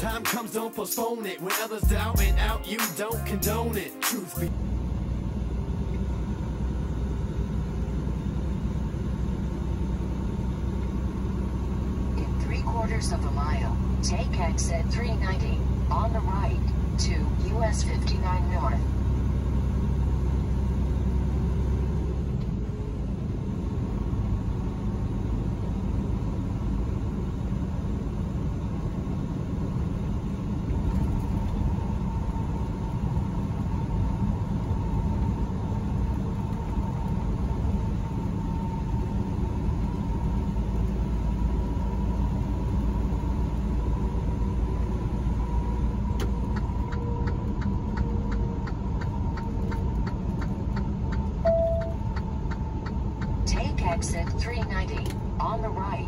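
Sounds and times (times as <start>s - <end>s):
truck engine rumble and road noise: 0.0s - 56.0s
turn signal ticking: 44.6s - 55.7s.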